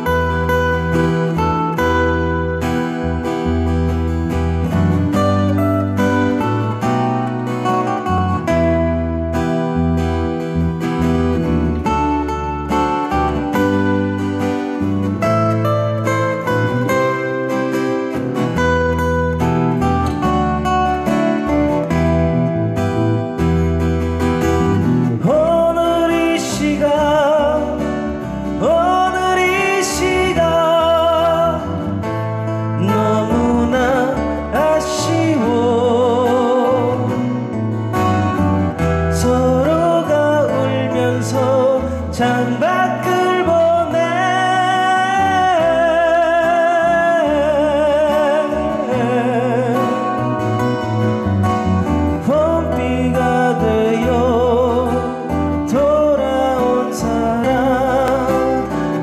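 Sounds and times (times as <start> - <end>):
man singing pop song: 0.0 - 3.4, 24.8 - 59.0
strummed acoustic guitars: 0.0 - 59.0.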